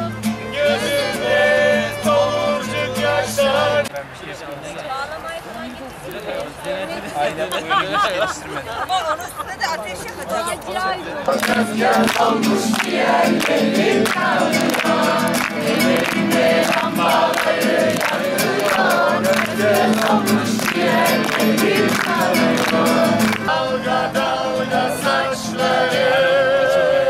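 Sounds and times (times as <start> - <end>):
group of people singing: 0.0 - 3.9, 11.3 - 27.0
strummed guitar: 0.0 - 3.9, 11.3 - 27.0
violin: 0.0 - 3.9.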